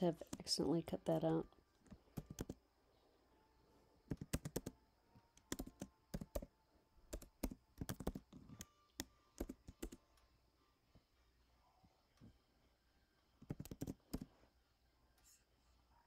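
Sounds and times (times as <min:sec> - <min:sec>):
keyboard typing: 0:01.8 - 0:02.6, 0:04.1 - 0:06.5, 0:07.1 - 0:10.0, 0:13.4 - 0:14.3.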